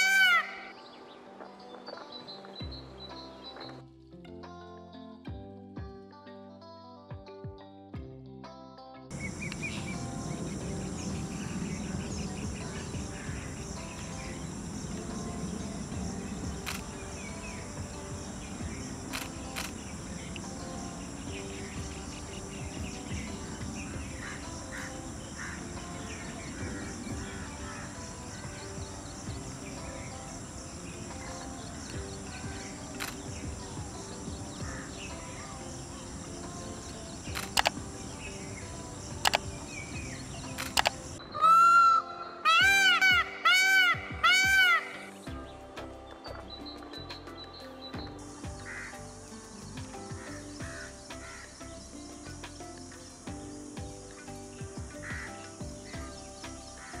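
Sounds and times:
soft background music: 0:00.0 - 0:57.0
steady background hiss: 0:09.1 - 0:41.4, 0:46.9 - 0:57.0
insects chirping: 0:09.1 - 0:57.0
small bird chirps: 0:09.1 - 0:57.0
sharp clicks: 0:12.2 - 0:26.5, 0:29.8 - 0:33.4, 0:36.4 - 0:41.2.

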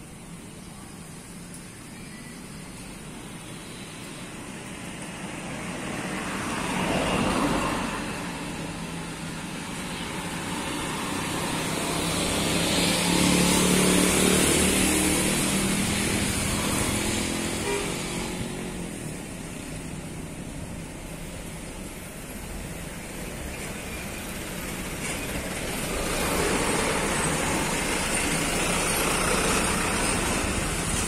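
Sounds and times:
heavy diesel engine: 0:07.9 - 0:31.0.

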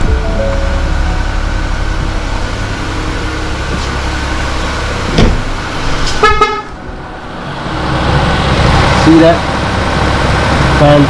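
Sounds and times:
car engine humming: 0:00.0 - 0:11.0
sharp thump: 0:05.1 - 0:05.5.

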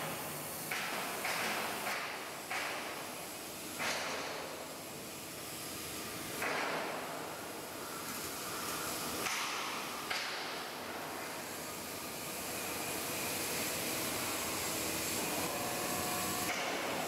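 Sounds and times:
machine hiss: 0:00.0 - 0:17.0
milling machine whirring: 0:10.8 - 0:17.0.

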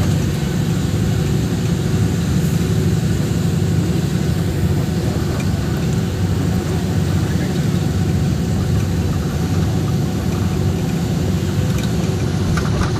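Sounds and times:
vehicle engine and road rumble: 0:00.0 - 0:12.9.

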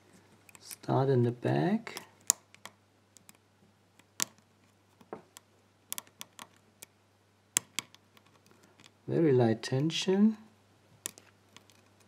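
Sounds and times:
lock pick metallic clicks: 0:01.9 - 0:03.4, 0:04.0 - 0:04.4, 0:05.3 - 0:07.0.

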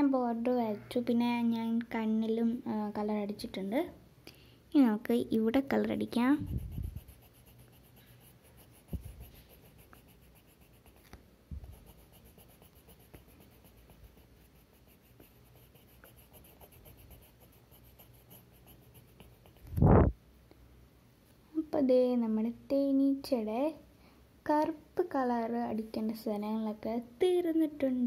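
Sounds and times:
pencil scratching on paper: 0:05.6 - 0:19.8.

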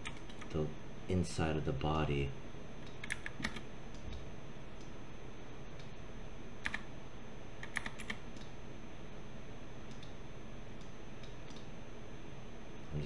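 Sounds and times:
keyboard and mouse clicking: 0:02.8 - 0:04.2, 0:06.6 - 0:06.9, 0:07.6 - 0:08.5, 0:09.9 - 0:10.2, 0:10.8 - 0:11.7.

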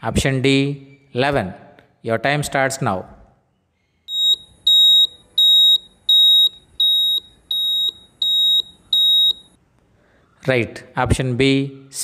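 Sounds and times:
high electronic beeps: 0:04.1 - 0:09.6.

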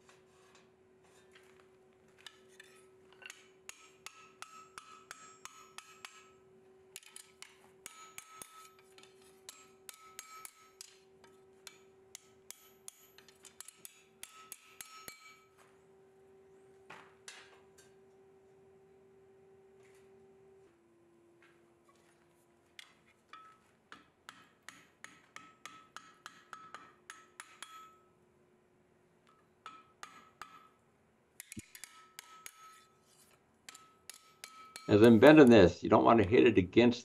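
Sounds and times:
hammer striking metal on anvil: 0:02.2 - 0:06.4, 0:07.0 - 0:11.0, 0:11.6 - 0:15.6, 0:23.3 - 0:28.1, 0:29.3 - 0:30.8, 0:31.4 - 0:32.9, 0:33.7 - 0:35.7.

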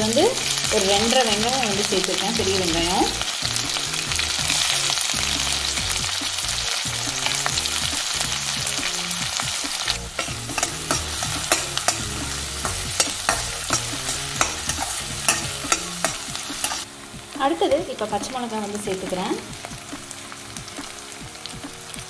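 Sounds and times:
onions sizzling in oil: 0:00.0 - 0:22.0
metal spatula scraping pan: 0:09.8 - 0:16.9.

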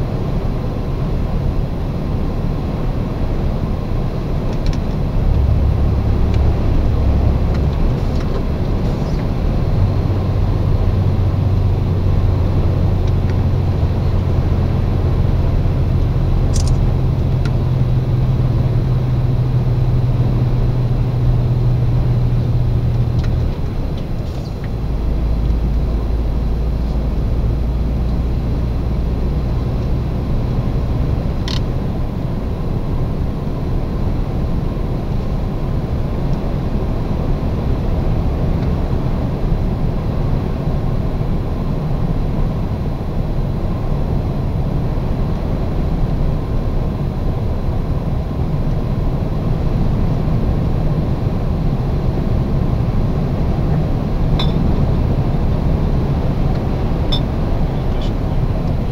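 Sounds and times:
lorry engine and road noise: 0:00.0 - 0:58.9
sharp click: 0:16.5 - 0:16.9.

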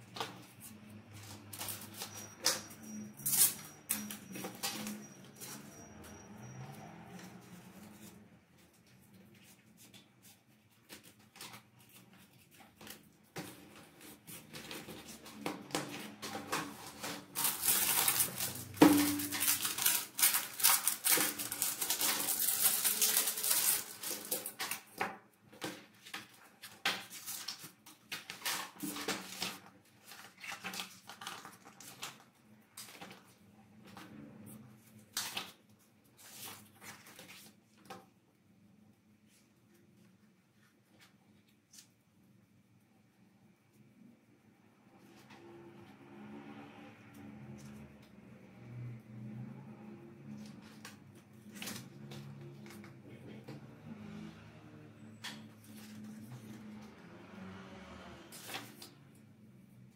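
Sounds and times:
packaging rustling: 0:14.2 - 0:25.0.

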